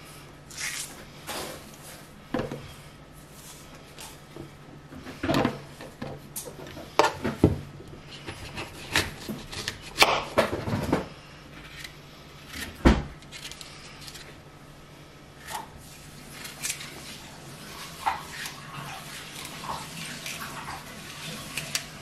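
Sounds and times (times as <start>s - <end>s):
knife cutting apple on board: 8.2s - 10.5s.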